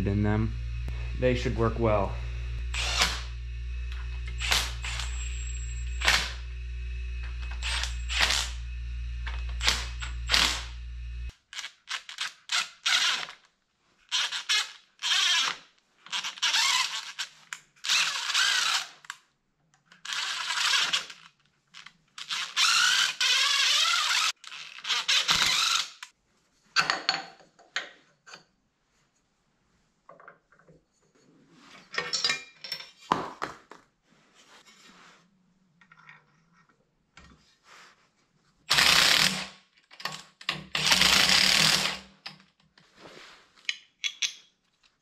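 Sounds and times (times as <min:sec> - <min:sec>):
steady low hum: 0:00.0 - 0:11.3
cordless driver zapping: 0:00.0 - 0:13.3, 0:38.7 - 0:39.5
cordless drill whirring: 0:00.3 - 0:13.3, 0:14.1 - 0:17.2, 0:17.8 - 0:19.0, 0:20.0 - 0:21.2, 0:22.2 - 0:26.1, 0:38.7 - 0:39.5, 0:40.8 - 0:42.0.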